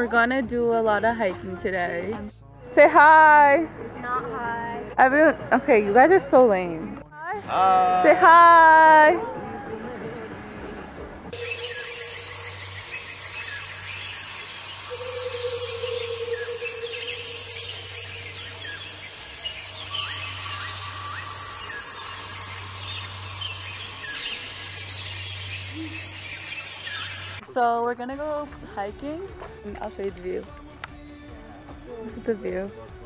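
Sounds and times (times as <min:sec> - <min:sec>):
birds calling: 0:11.3 - 0:27.4
insects chirping: 0:11.3 - 0:27.4.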